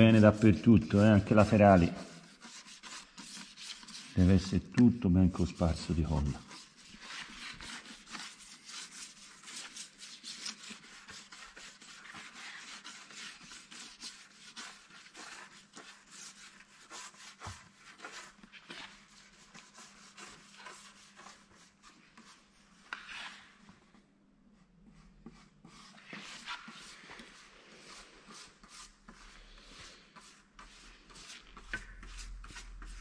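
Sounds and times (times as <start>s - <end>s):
glue rubbing and scraping: 0.0s - 4.6s, 5.4s - 23.6s.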